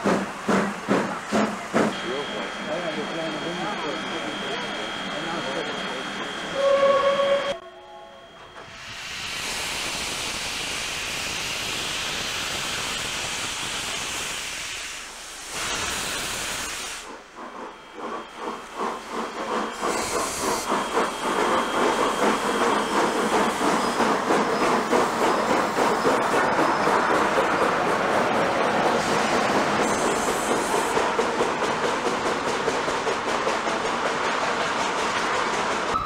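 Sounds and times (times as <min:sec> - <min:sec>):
steam locomotive exhaust chuffs: 0:00.0 - 0:07.4, 0:08.5 - 0:36.0
steam whistle: 0:06.5 - 0:08.6
steam hissing: 0:08.6 - 0:36.0.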